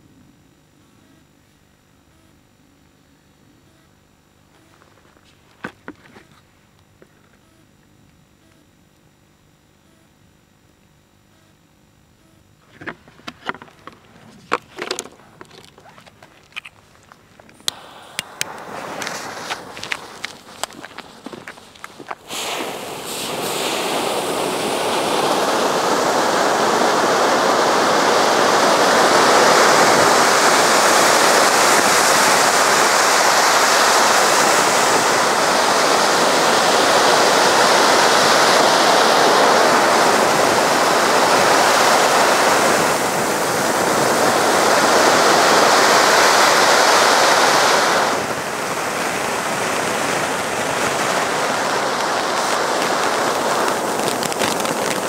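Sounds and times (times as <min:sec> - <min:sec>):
fireworks fountain hissing: 0:12.7 - 0:55.0.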